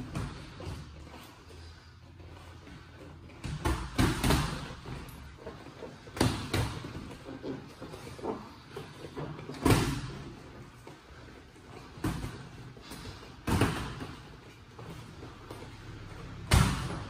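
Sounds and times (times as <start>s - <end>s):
boxing gloves punching: 3.4s - 5.0s, 6.0s - 7.3s, 16.4s - 17.0s.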